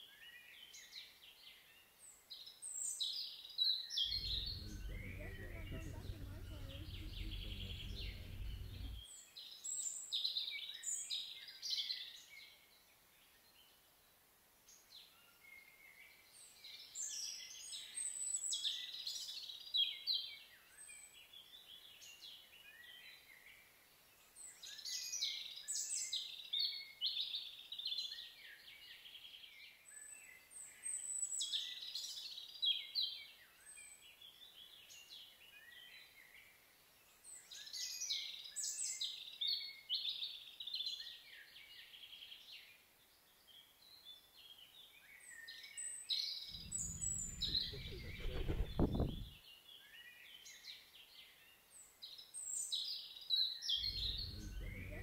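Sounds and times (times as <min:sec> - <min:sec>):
songbirds chirping: 0:04.0 - 0:09.1, 0:34.1 - 0:55.0
low rumble: 0:04.1 - 0:09.0, 0:46.5 - 0:49.4, 0:53.8 - 0:55.0.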